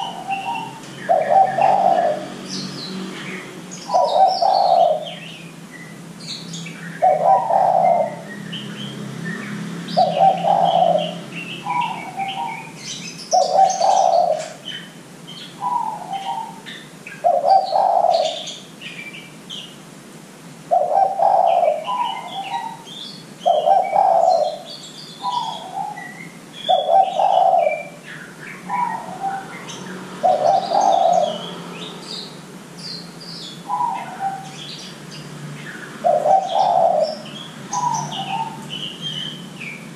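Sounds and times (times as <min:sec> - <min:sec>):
dove cooing: 0:00.0 - 0:05.4, 0:07.0 - 0:08.6, 0:09.9 - 0:14.9, 0:15.6 - 0:18.6, 0:20.7 - 0:31.9, 0:33.6 - 0:34.8, 0:36.0 - 0:39.4
small birds chirping: 0:00.0 - 0:19.9, 0:20.7 - 0:39.9.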